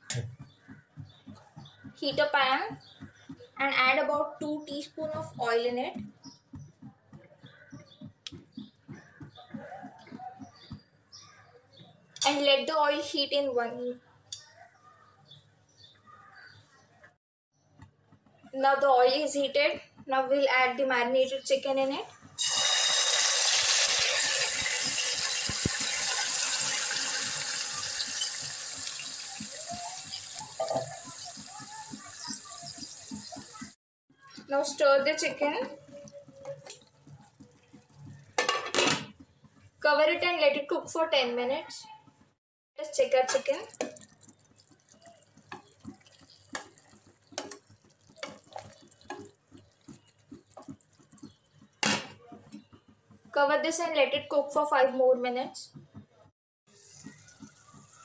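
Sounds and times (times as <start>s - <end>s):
chicken sizzling in hot oil: 22.4s - 33.8s, 43.0s - 51.8s, 56.7s - 58.0s
spatula stirring wet gravy: 23.3s - 38.4s, 43.0s - 51.8s, 56.7s - 58.0s.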